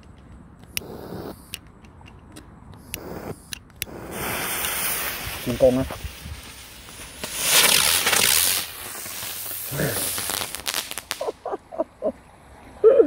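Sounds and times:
firework crackles: 0:00.7 - 0:01.6, 0:02.8 - 0:11.5
fireworks hissing: 0:00.8 - 0:01.6, 0:02.8 - 0:11.5.

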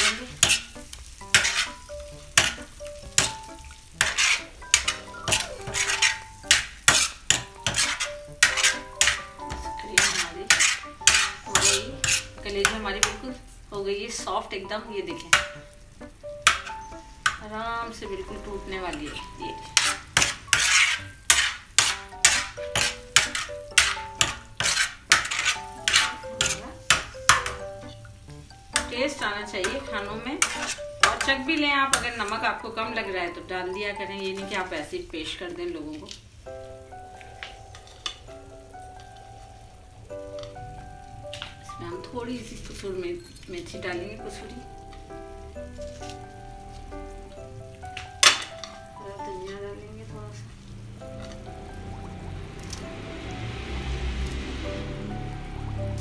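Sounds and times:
spoon scraping iron pan: 0:00.0 - 0:13.4, 0:16.4 - 0:17.4, 0:18.8 - 0:33.4
food sizzling: 0:00.0 - 0:56.0.

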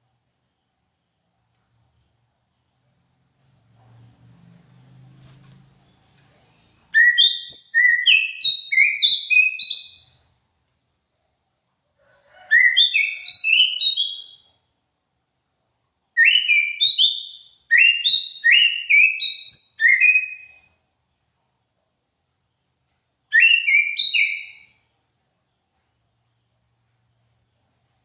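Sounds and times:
bird whistling song: 0:06.8 - 0:10.2, 0:12.5 - 0:14.5, 0:16.2 - 0:20.7, 0:23.3 - 0:24.8.

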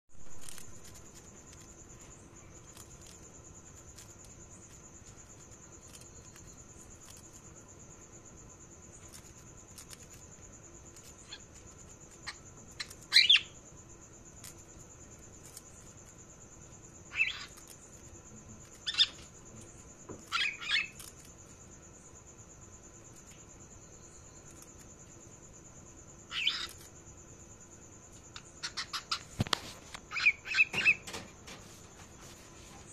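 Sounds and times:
cockatiel chirping: 0:12.2 - 0:13.6, 0:17.1 - 0:17.6, 0:20.3 - 0:21.1, 0:26.3 - 0:26.8, 0:28.6 - 0:29.2, 0:30.1 - 0:31.1.

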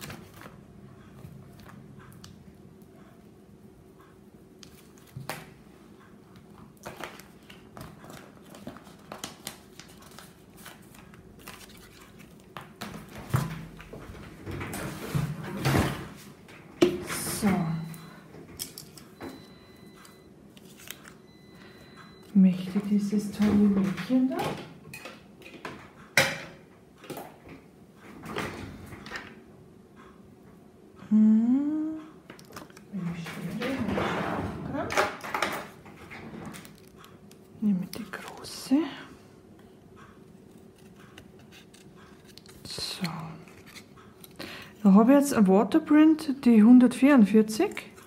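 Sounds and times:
faint steady hum: 0:00.0 - 0:48.0
plastic and paper sheets rustling: 0:06.8 - 0:15.4, 0:20.5 - 0:21.2.

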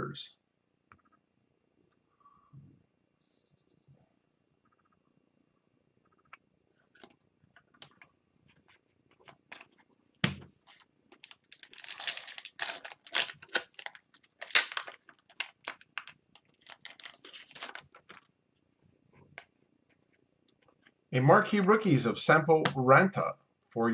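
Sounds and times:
foil wrapper tearing and crinkling: 0:10.6 - 0:18.3.

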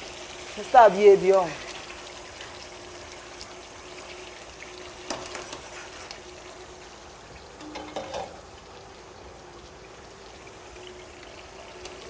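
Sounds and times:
metal ladle clinking on pot: 0:07.6 - 0:08.4.

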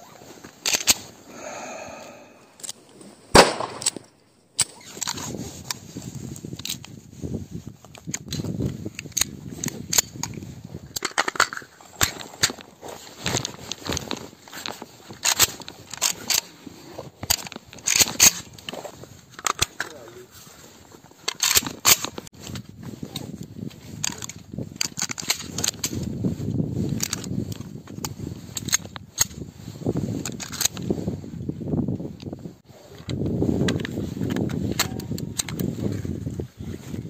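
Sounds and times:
gunshots cracking: 0:03.3 - 0:04.0.

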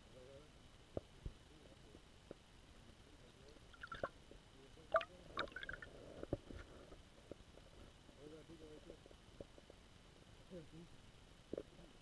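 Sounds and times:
underwater chirping and gurgling: 0:03.7 - 0:04.2, 0:04.9 - 0:06.2.

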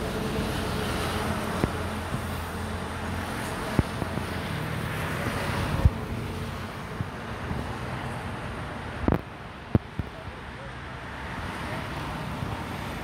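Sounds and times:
wind hissing over microphone: 0:00.0 - 0:10.1.

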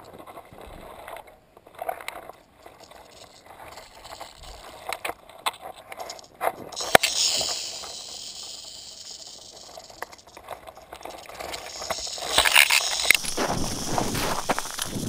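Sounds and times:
rattlesnake rattling: 0:02.4 - 0:05.2, 0:05.8 - 0:15.0
pole scraping and rustling: 0:10.2 - 0:15.0.

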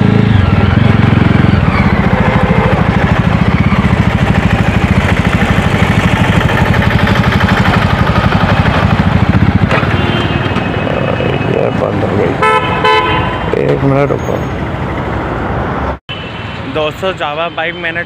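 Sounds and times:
motorcycle engine running at low revs: 0:00.0 - 0:11.4.

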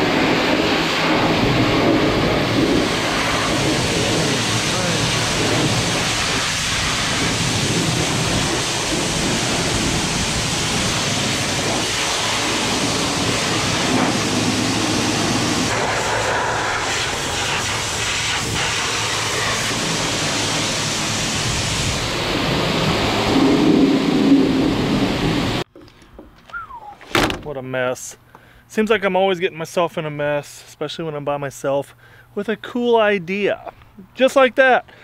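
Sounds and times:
pressure washer spraying: 0:00.0 - 0:25.6.

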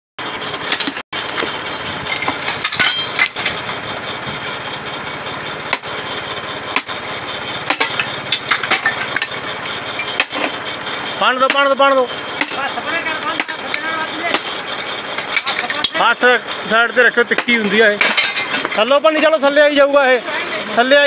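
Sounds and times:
machine engine running: 0:00.2 - 0:21.0
sharp metallic knocks: 0:00.7 - 0:04.6, 0:05.6 - 0:06.0, 0:06.6 - 0:19.2.

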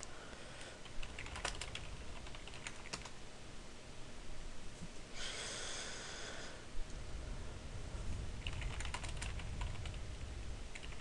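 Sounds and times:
computer keyboard keystrokes: 0:00.9 - 0:03.2, 0:08.4 - 0:10.0, 0:10.7 - 0:11.0.

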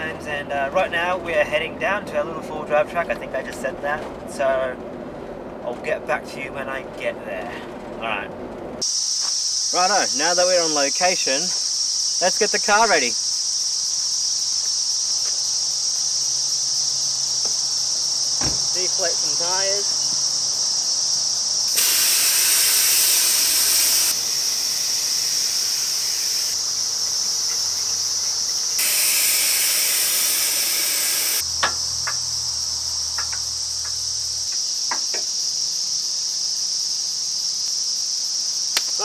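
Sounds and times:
insects droning: 0:00.0 - 0:39.0
air hissing from tyre valves: 0:08.8 - 0:12.2, 0:13.2 - 0:32.2.

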